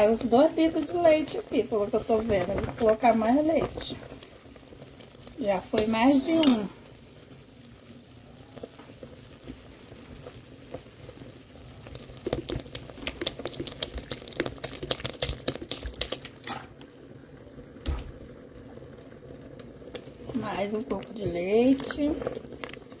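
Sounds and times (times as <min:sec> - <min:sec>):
milk glugging and splashing into pot: 0:11.8 - 0:16.9.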